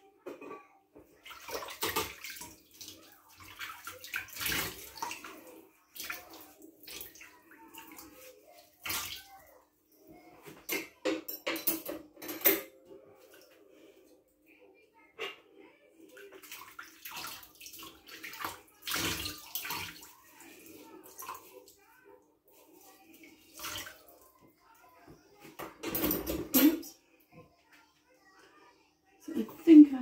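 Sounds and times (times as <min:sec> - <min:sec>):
dishes clattering: 0:00.2 - 0:00.8, 0:01.6 - 0:02.6, 0:10.5 - 0:12.9, 0:25.4 - 0:26.9
water sloshing and splashing: 0:01.1 - 0:09.5, 0:16.2 - 0:21.8, 0:22.6 - 0:24.4.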